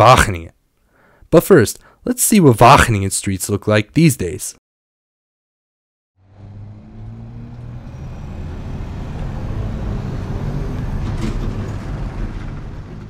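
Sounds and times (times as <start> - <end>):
vehicle engine humming: 6.2 - 13.0.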